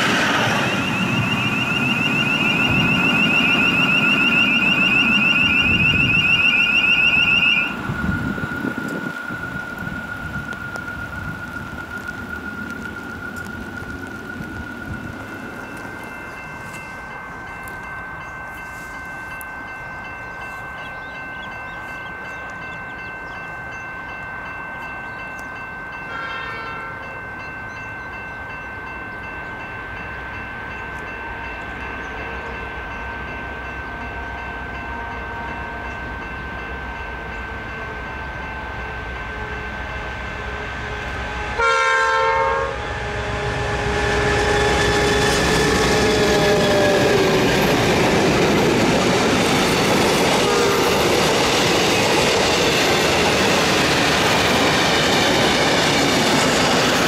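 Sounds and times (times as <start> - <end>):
train rumbling past: 0.0 - 57.0
train air horn blasts: 26.1 - 27.1, 32.1 - 36.2, 37.8 - 47.6, 50.3 - 51.1.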